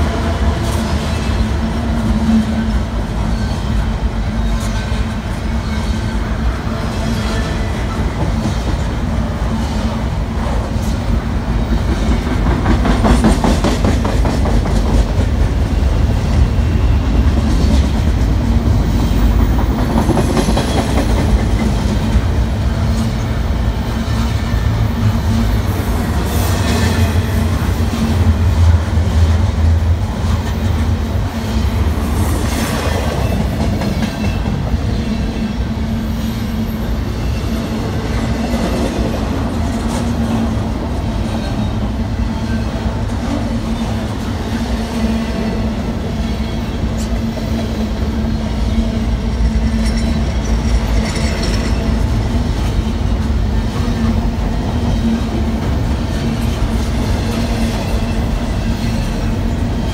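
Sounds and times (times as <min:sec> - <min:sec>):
freight train rolling past: 0:00.0 - 0:59.9
wheels clickety-clack: 0:07.0 - 0:23.3, 0:49.6 - 0:59.3.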